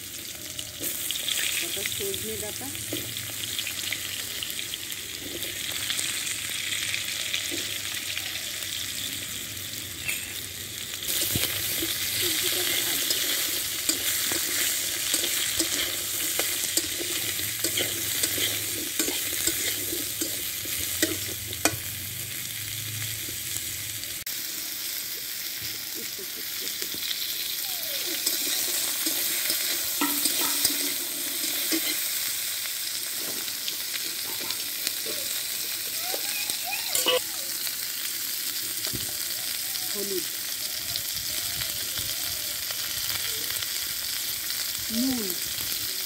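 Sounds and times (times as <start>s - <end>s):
food sizzling in oil: 0.0s - 46.0s
metal spatula scraping a wok: 11.1s - 21.9s, 28.1s - 32.3s.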